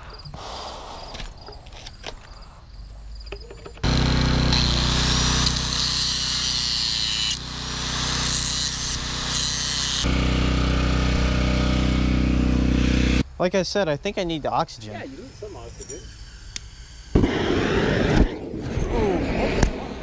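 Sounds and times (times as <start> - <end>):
angle grinder grinding metal: 3.8 - 13.2, 14.9 - 17.2.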